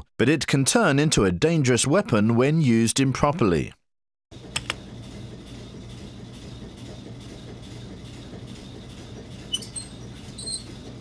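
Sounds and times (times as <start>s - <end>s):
low machinery hum: 4.4s - 11.0s.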